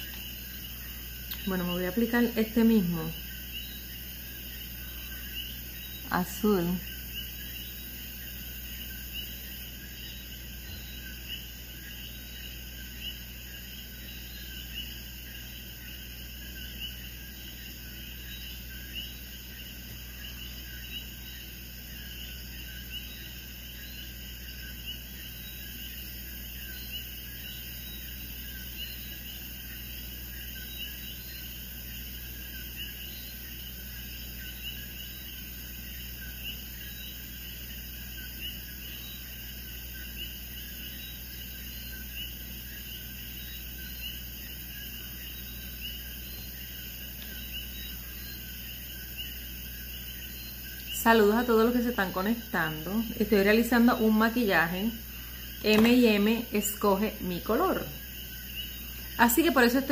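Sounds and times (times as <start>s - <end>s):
chorus of chirping night animals: 0.0s - 59.9s.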